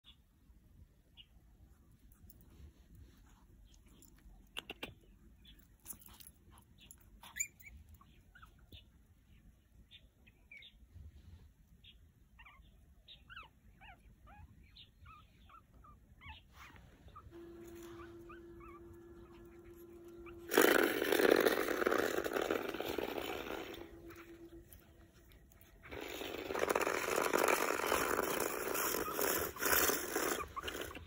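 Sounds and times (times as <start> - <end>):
puppies whimpering and squeaking: 5.4 - 9.4, 11.8 - 31.0.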